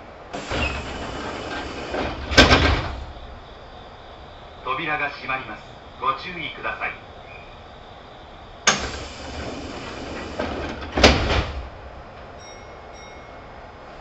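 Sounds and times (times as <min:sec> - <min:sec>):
sliding doors closing: 0:00.0 - 0:04.3, 0:08.6 - 0:12.5
doors thudding shut: 0:00.4 - 0:03.2, 0:08.7 - 0:11.8.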